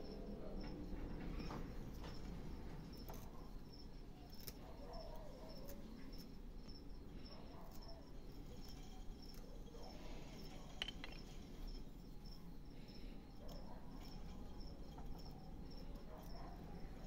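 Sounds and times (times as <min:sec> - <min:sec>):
cricket chirping: 0:00.0 - 0:17.0
knife carving wood: 0:02.9 - 0:12.4, 0:13.3 - 0:17.0.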